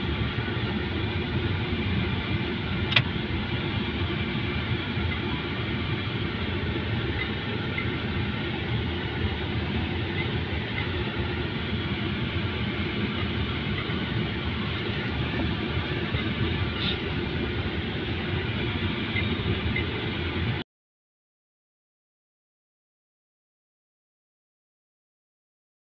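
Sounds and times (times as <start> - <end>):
car road and engine noise: 0.0 - 20.6.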